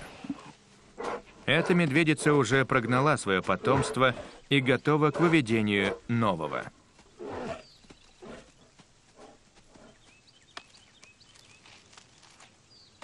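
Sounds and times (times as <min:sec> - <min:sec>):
bear growling and grunting: 0:00.0 - 0:08.6.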